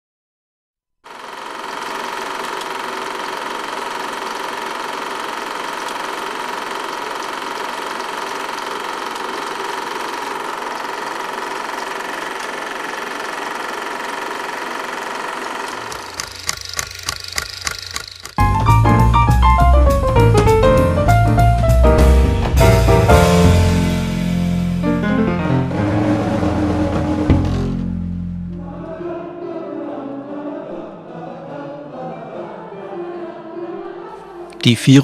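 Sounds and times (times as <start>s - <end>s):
film projector whirring and rattling: 1.0s - 18.4s
regular mechanical clicks: 15.3s - 18.4s
piano music: 18.4s - 30.7s.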